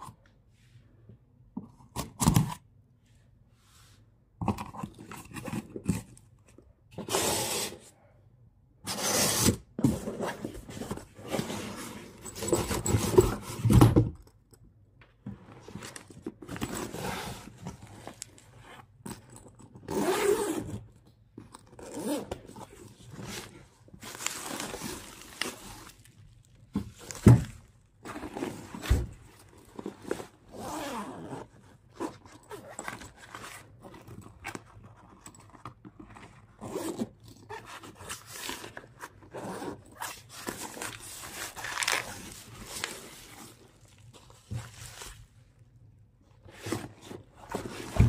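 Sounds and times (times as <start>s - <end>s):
zippers pulled open: 19.4s - 20.8s, 21.6s - 22.7s, 30.0s - 34.4s, 36.1s - 38.1s.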